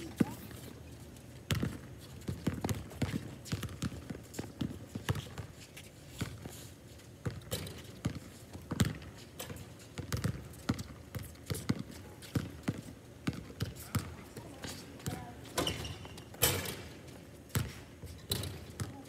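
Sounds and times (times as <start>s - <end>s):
basketball bouncing on court: 1.5s - 5.5s, 7.2s - 16.9s, 17.5s - 19.0s.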